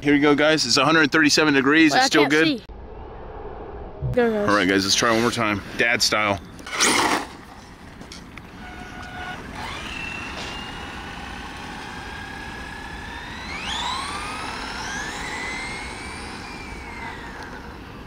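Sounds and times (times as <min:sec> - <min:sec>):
electric motor whining: 0:09.1 - 0:18.0.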